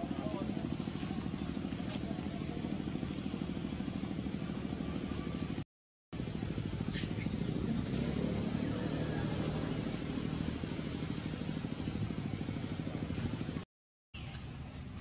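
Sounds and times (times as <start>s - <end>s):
low pulsing engine noise: 0.0s - 5.6s, 6.2s - 13.6s, 14.2s - 15.0s
short high squeaks: 6.9s - 8.2s.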